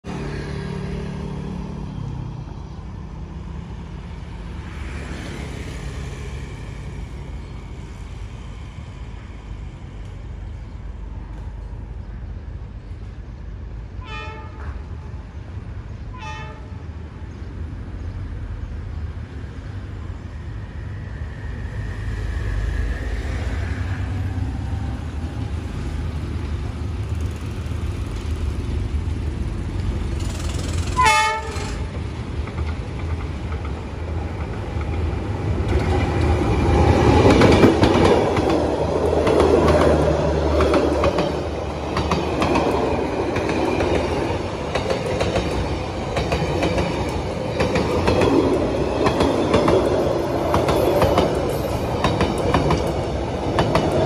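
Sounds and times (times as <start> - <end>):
street traffic noise: 0.0 - 54.0
locomotive horn toots: 14.0 - 14.7, 16.2 - 16.8, 31.0 - 31.9.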